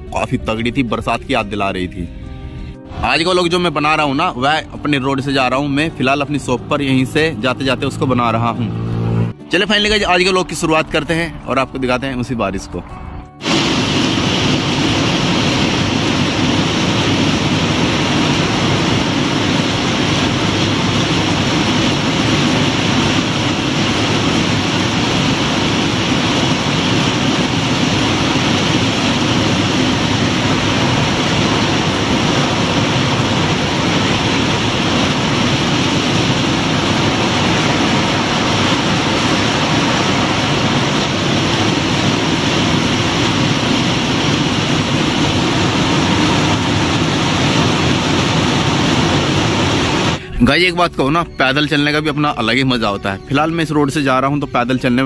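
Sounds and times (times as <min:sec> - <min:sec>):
heavy rain on concrete roof: 0:13.4 - 0:50.2.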